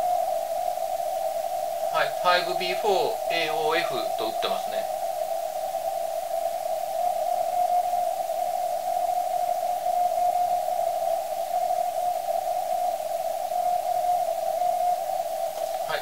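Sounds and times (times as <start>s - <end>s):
faint morse code signal: 2.0s - 4.9s
radio band hiss: 2.0s - 5.0s, 15.6s - 16.0s.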